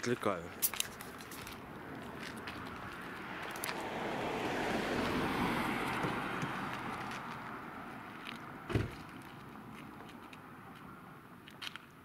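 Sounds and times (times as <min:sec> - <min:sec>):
car passing: 0:00.2 - 0:12.0
low thump: 0:08.7 - 0:09.0.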